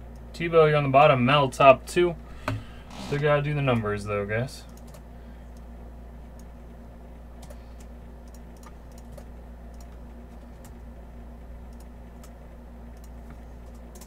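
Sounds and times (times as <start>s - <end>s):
steady low hum: 0.0s - 14.0s
computer keyboard keystrokes: 4.7s - 5.6s, 7.4s - 10.0s, 11.7s - 14.0s.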